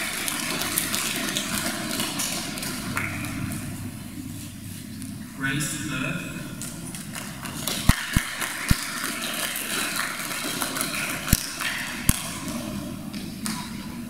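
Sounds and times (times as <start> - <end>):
audience clapping: 0.0 - 3.6, 6.9 - 14.0.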